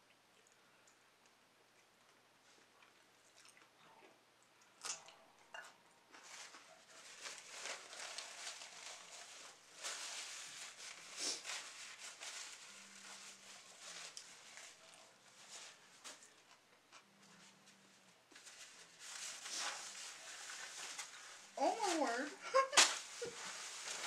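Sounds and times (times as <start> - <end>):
person chewing food: 0.0 - 6.2
paper napkin rustling: 6.2 - 16.3, 18.3 - 24.0.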